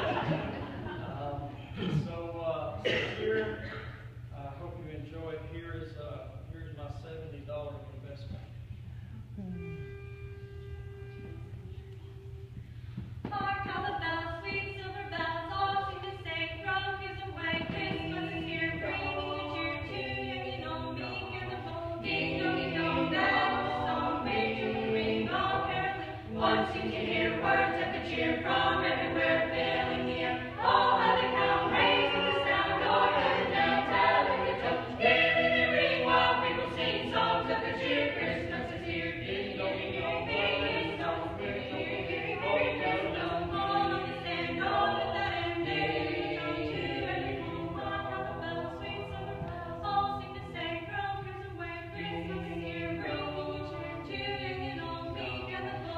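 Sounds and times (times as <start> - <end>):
group singing carol a cappella: 0.0 - 2.0, 13.3 - 55.9.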